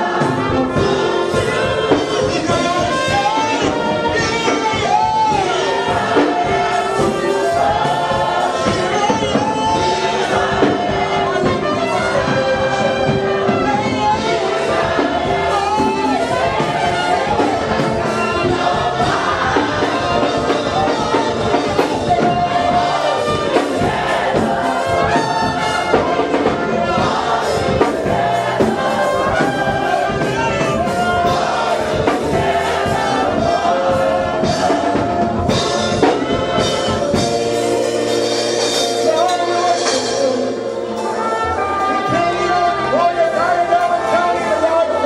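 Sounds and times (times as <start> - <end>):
congregation singing: 0.0 - 45.0
loud band music: 0.0 - 45.0.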